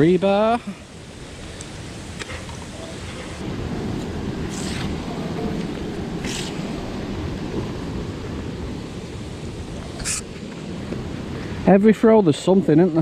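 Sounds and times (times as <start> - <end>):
rope hissing through gloves: 1.2 - 7.6, 8.9 - 10.6
wind buffeting microphone: 2.8 - 11.8.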